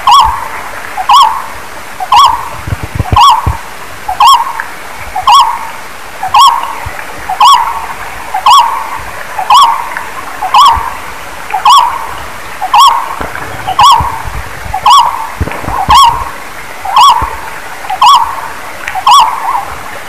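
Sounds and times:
bird hooting call: 0:00.0 - 0:01.5, 0:02.1 - 0:02.5, 0:03.1 - 0:04.6, 0:05.2 - 0:05.7, 0:06.3 - 0:06.7, 0:07.3 - 0:11.0, 0:11.6 - 0:14.2, 0:14.8 - 0:16.3, 0:16.9 - 0:18.4, 0:19.0 - 0:19.7.

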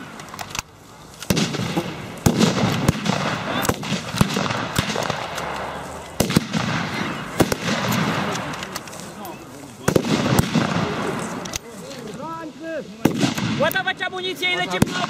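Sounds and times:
sharp gunshots: 0:01.2 - 0:08.7, 0:09.8 - 0:11.5, 0:13.0 - 0:14.0, 0:14.7 - 0:15.0.

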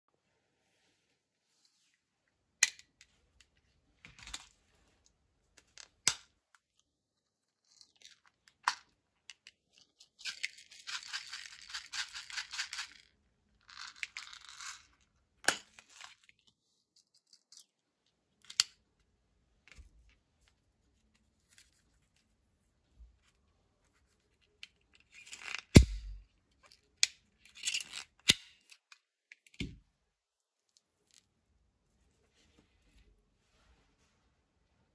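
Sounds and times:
small balls rattling: 0:10.1 - 0:15.1.

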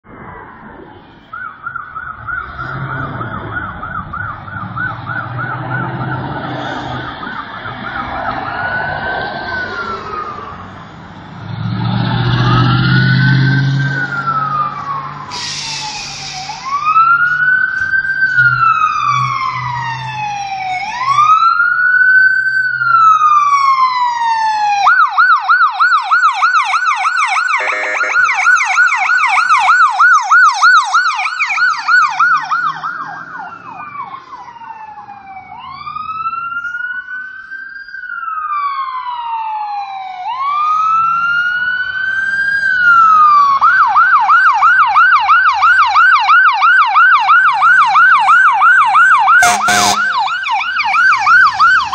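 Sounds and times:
emergency sirens wailing and yelping: 0:00.0 - 0:51.9
short hiss: 0:15.3 - 0:16.7.

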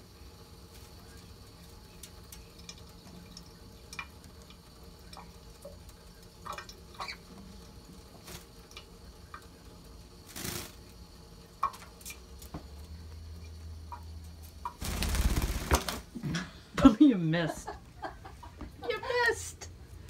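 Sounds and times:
water splashing into metal sink: 0:01.9 - 0:12.6.

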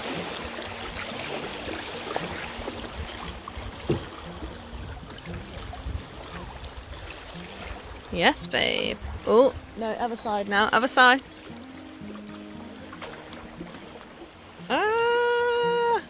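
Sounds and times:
river water rushing and splashing: 0:00.0 - 0:16.0
wind buffeting microphone: 0:02.0 - 0:10.6
short knocks: 0:03.8 - 0:04.2.

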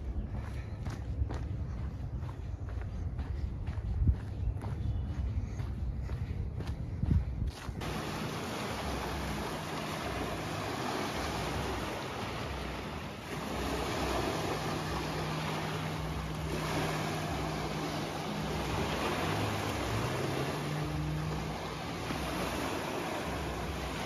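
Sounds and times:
wind: 0:00.0 - 0:24.0
lake water lapping: 0:07.8 - 0:24.0.

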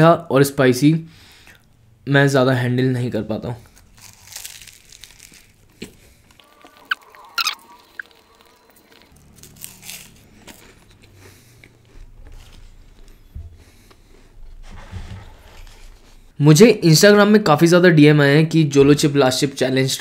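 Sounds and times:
crisp pastry crackling: 0:03.6 - 0:13.2
person chewing: 0:03.6 - 0:14.4.

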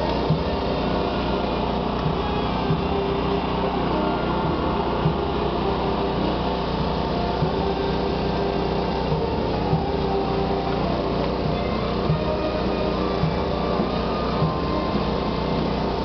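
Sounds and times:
small engine droning: 0:00.0 - 0:16.0.

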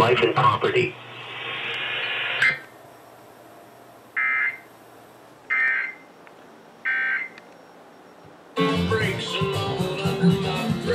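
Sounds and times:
steady hiss: 0:00.2 - 0:05.6.

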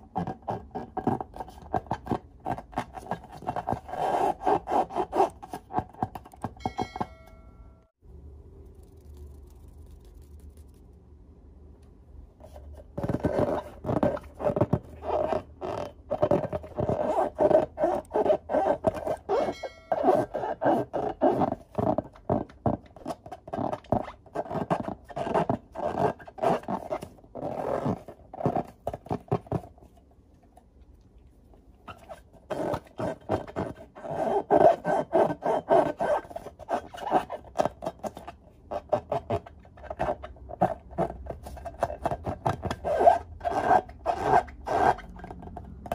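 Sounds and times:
rubber balloons squeaking: 0:13.0 - 0:29.3, 0:31.8 - 0:45.9.

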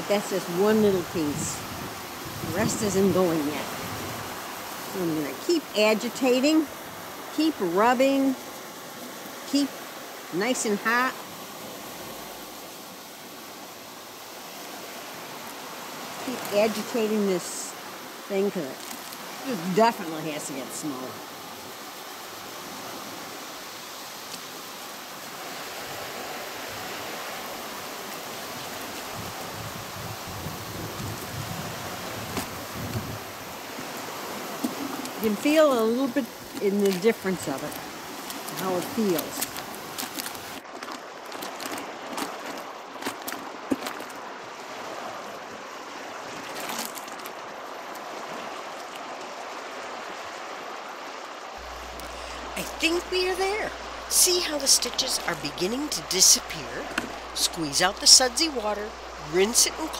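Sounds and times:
soapy water sloshing and squelching: 0:33.8 - 0:44.3, 0:46.0 - 0:49.0
water sloshing in plastic bucket: 0:36.3 - 0:44.3, 0:46.3 - 0:47.4, 0:54.8 - 0:59.9.

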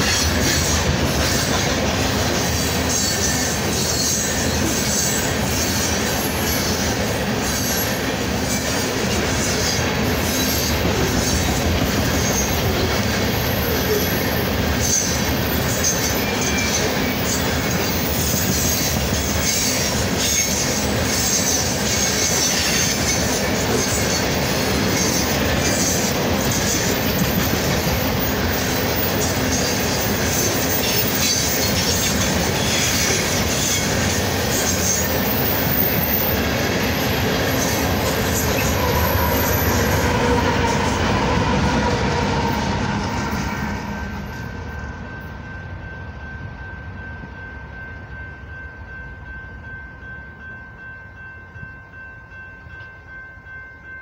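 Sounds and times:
train wheels rumbling on rails: 0:00.0 - 0:54.0
high wheel squeal: 0:02.4 - 0:08.7, 0:13.4 - 0:23.2.

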